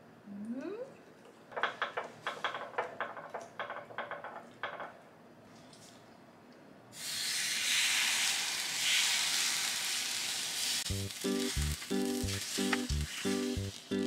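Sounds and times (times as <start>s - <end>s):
batter sizzling: 7.0s - 14.0s
music with plucked rhythm: 10.9s - 14.0s.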